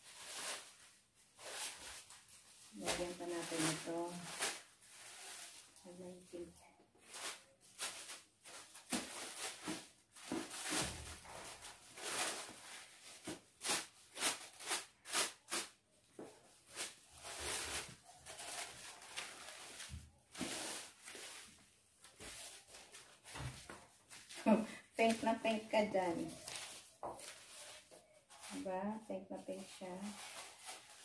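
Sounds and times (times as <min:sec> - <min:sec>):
wrapping paper rustling: 0:00.0 - 0:31.0.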